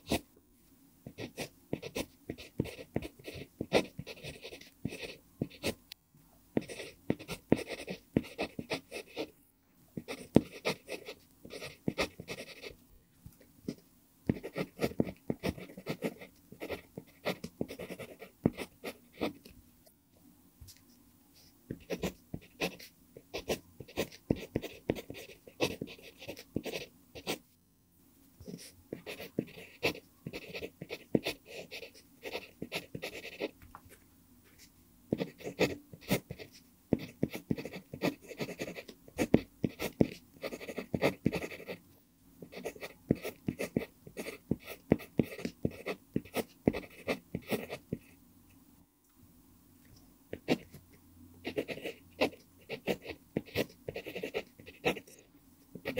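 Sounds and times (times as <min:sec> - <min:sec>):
pencil scratching on paper: 0:01.1 - 0:05.8, 0:06.6 - 0:09.3, 0:10.0 - 0:12.8, 0:13.7 - 0:19.4, 0:21.7 - 0:27.4, 0:28.4 - 0:33.6, 0:34.6 - 0:41.8, 0:42.4 - 0:48.1, 0:50.4 - 0:50.8, 0:51.4 - 0:55.2.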